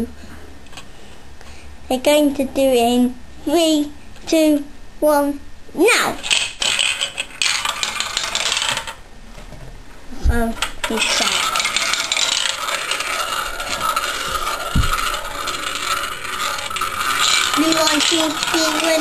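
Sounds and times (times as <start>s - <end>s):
marbles clattering down track: 6.2s - 9.0s, 10.6s - 19.0s
marbles rolling in plastic bowl: 6.2s - 9.0s, 10.6s - 19.0s.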